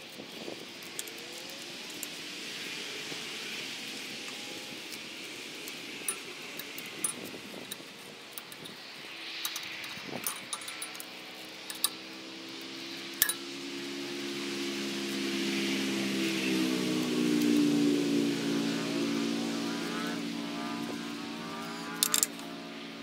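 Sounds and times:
steady background hiss: 0:00.0 - 0:23.0
metal tool clinking on tines: 0:09.4 - 0:11.1, 0:13.2 - 0:13.4, 0:21.8 - 0:22.5
motor hum: 0:11.7 - 0:23.0.

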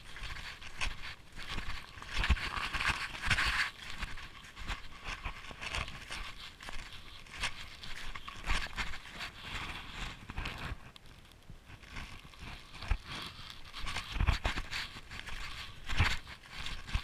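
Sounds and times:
snowshoe footsteps crunching snow: 0:00.0 - 0:10.7.

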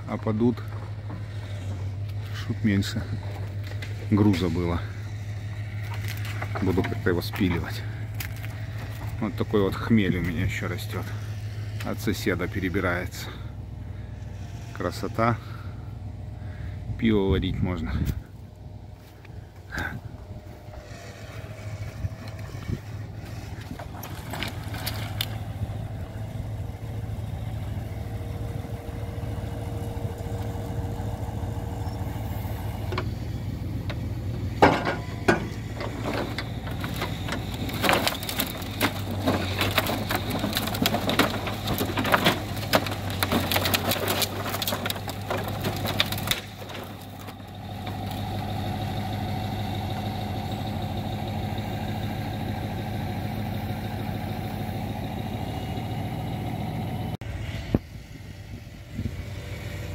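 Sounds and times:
truck engine running: 0:00.0 - 0:59.9
wood slabs clattering: 0:00.1 - 0:13.5, 0:20.6 - 0:52.0.

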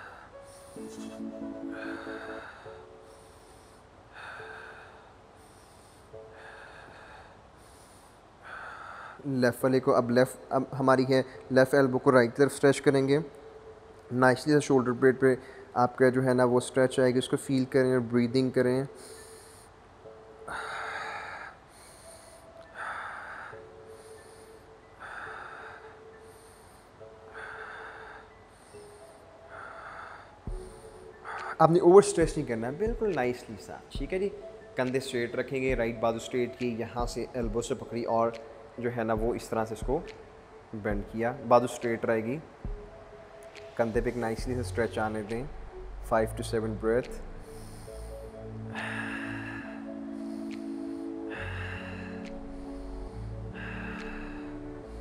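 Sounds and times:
man breathing deeply: 0:00.0 - 0:09.3, 0:19.0 - 0:19.8, 0:20.4 - 0:31.6, 0:47.4 - 0:55.0.

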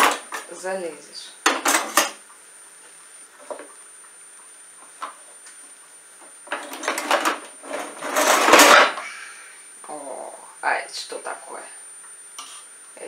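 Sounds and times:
utensils clattering: 0:01.5 - 0:02.2, 0:06.5 - 0:09.0
utensils clinking in drawer: 0:06.5 - 0:09.0.

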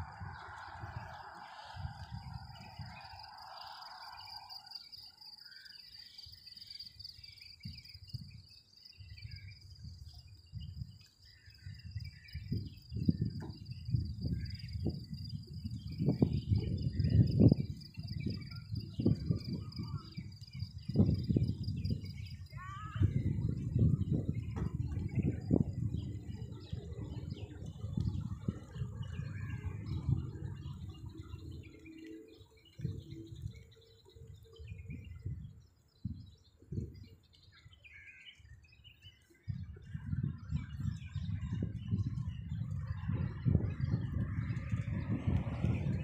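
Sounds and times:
wind buffeting microphone: 0:00.0 - 0:46.0
bird chirps: 0:00.1 - 0:45.0
high insect trill: 0:00.2 - 0:09.1.

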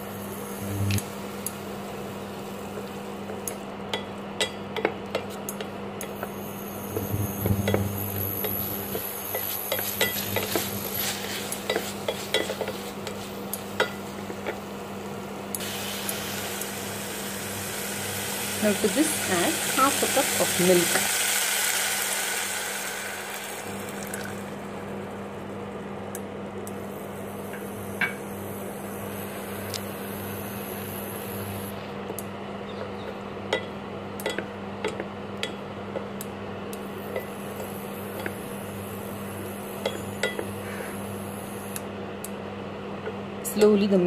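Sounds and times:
milk sizzling in hot pan: 0:06.0 - 0:25.2
milk simmering: 0:21.9 - 0:24.7.

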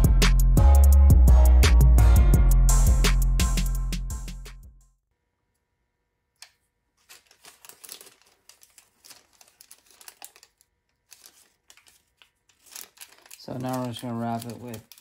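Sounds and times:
background music: 0:00.0 - 0:05.0
parchment paper crinkling: 0:06.4 - 0:15.0.

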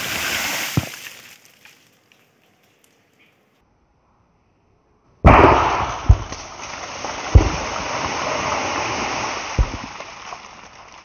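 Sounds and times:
firecracker bangs: 0:05.2 - 0:08.4, 0:09.6 - 0:10.0
heavy underground blast: 0:05.2 - 0:10.1.

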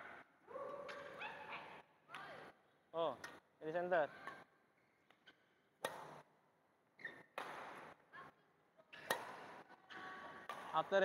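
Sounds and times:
rackets hitting shuttlecock: 0:05.1 - 0:06.3, 0:07.1 - 0:08.0, 0:08.9 - 0:09.6, 0:10.4 - 0:11.0.

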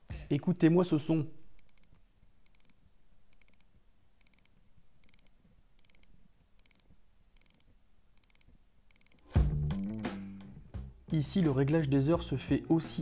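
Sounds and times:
watch winding ratchet clicks: 0:01.6 - 0:10.0.

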